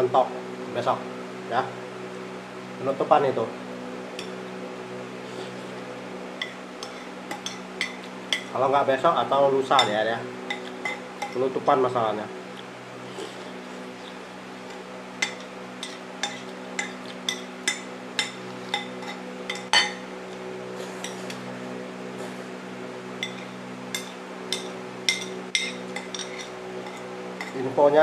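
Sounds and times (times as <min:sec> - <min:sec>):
steady low hum: 0:00.0 - 0:28.0
spoon clinking on ceramic plate: 0:15.2 - 0:20.0.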